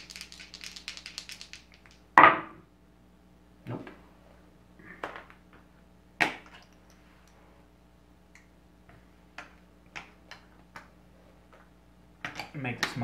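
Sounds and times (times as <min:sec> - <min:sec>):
plastic miniatures clicking: 0:00.0 - 0:02.0.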